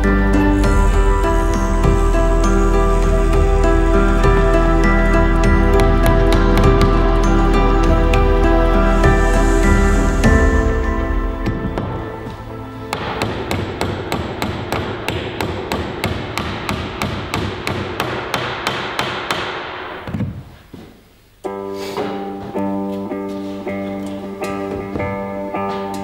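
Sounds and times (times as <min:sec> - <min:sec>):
guitar music: 0:00.0 - 0:14.2, 0:21.5 - 0:26.0.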